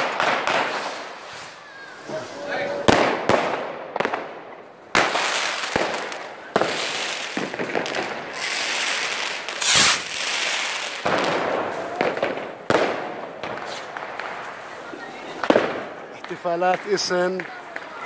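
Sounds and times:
fireworks bangs with echo: 0.0 - 18.0.

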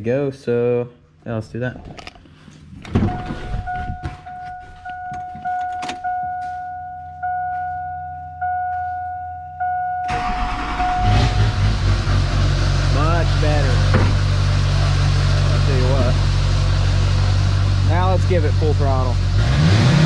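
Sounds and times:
truck warning chime dinging: 3.0 - 11.8
diesel engine cranking and running: 10.1 - 20.0.

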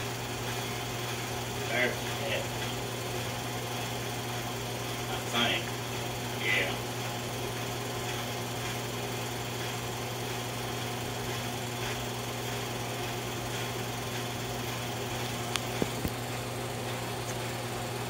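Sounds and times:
film mechanism whirring: 0.0 - 18.0
projector motor hum: 0.0 - 18.0.

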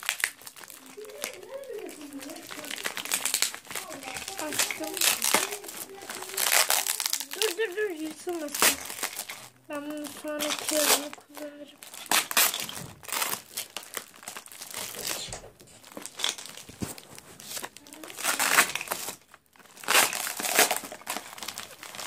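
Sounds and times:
paper and plastic wrapping crinkling: 0.0 - 22.0.

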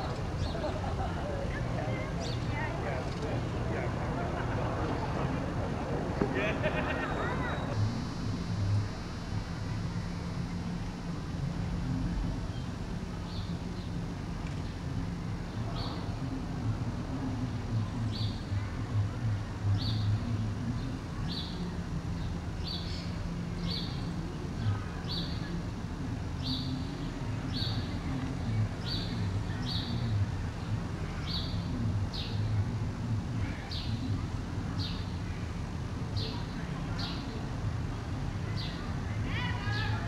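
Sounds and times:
steady low rumble: 0.0 - 40.0.

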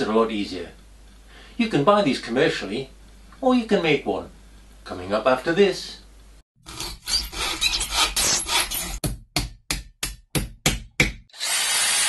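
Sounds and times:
rasping strokes: 6.6 - 9.0.

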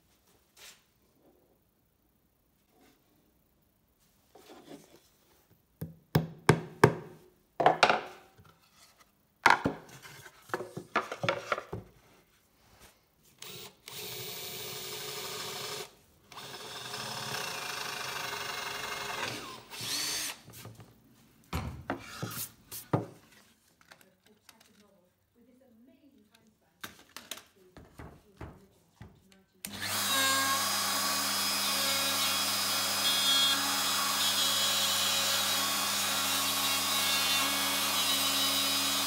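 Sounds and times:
wood knocking on workbench: 9.5 - 9.8
power tool motor running: 13.4 - 20.4, 29.7 - 39.0.

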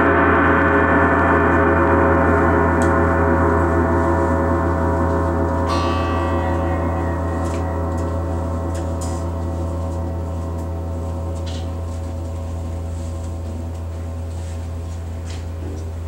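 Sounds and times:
large gongs ringing: 0.0 - 14.8
brighter higher ringing: 1.3 - 12.9.

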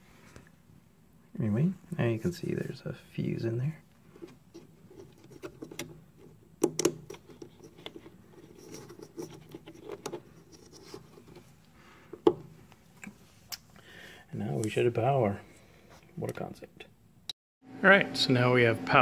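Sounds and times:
plastic clicks and scrapes: 6.6 - 11.4.

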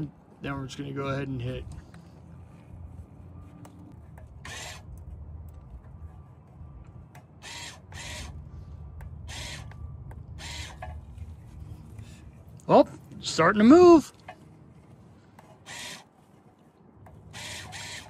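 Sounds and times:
brake caliper motor buzzing: 4.4 - 5.0, 17.3 - 18.0.

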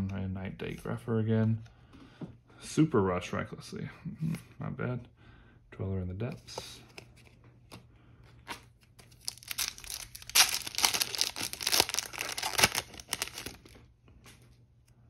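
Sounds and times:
foil wrapper crinkling and tearing: 9.0 - 13.8.

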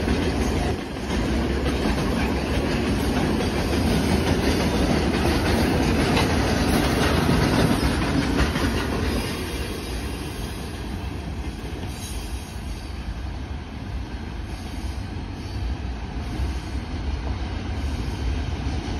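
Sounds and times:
train wheels clattering: 0.0 - 12.8.

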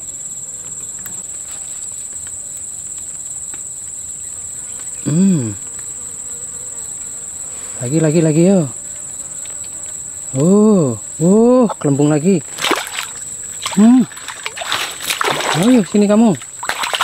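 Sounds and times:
insects droning: 0.0 - 17.0
man exclaiming: 13.8 - 14.1.

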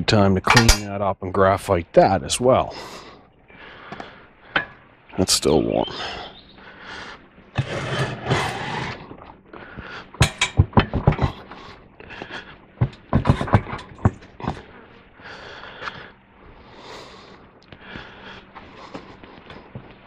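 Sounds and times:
sharp metal knocks: 0.5 - 0.9, 10.2 - 11.5
metal scraping: 7.6 - 9.3, 12.8 - 14.6.

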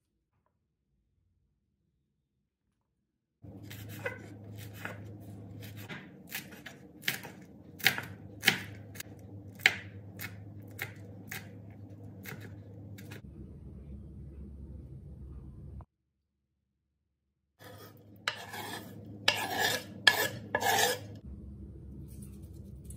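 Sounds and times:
knife chopping on wooden board: 3.6 - 11.6, 12.2 - 13.2, 17.6 - 21.1.

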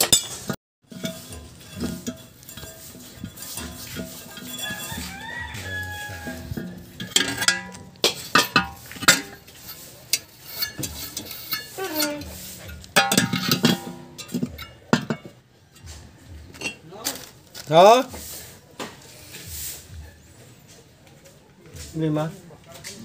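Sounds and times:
steel tools clinking and knocking: 0.0 - 16.9.

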